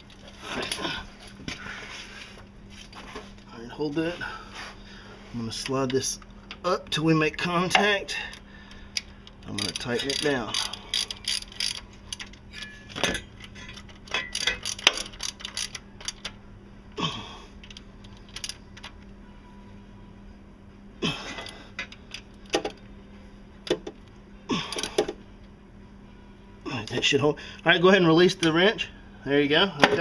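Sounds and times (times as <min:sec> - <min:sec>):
hand ratchet clicking: 0:08.9 - 0:12.3, 0:14.0 - 0:16.3.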